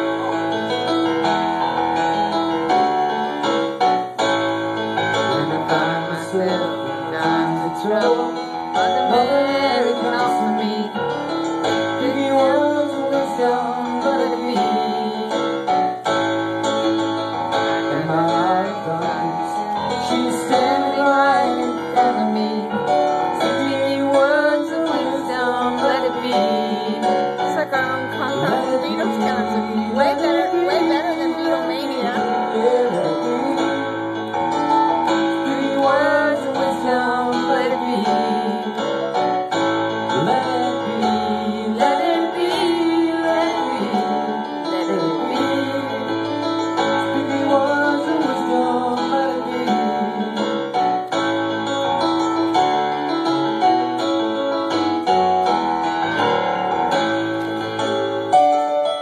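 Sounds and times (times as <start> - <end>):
live piano music: 0.0 - 59.0.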